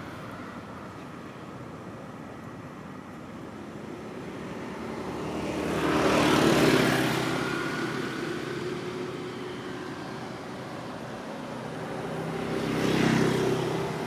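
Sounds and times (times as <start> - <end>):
motor vehicle driving past: 4.1 - 14.0.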